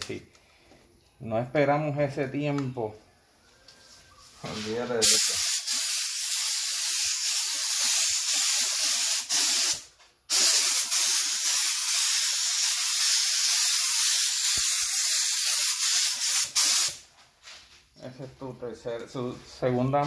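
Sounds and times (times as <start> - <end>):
spray gun hissing: 5.0 - 17.0.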